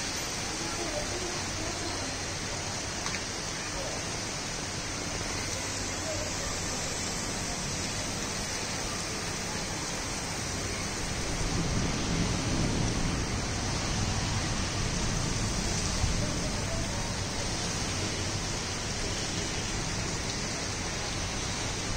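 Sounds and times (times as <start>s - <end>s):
heavy rain hissing: 0.0s - 21.9s.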